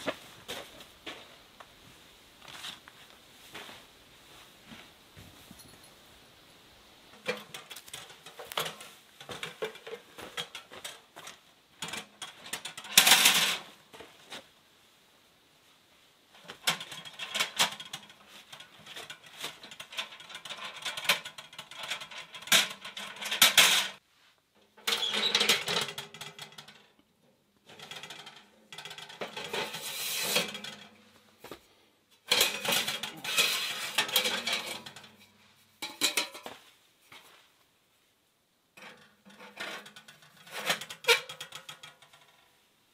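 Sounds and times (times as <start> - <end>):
stovepipe sections sliding: 27.7 - 31.0, 32.3 - 36.5
metal stove clanking: 32.2 - 36.6.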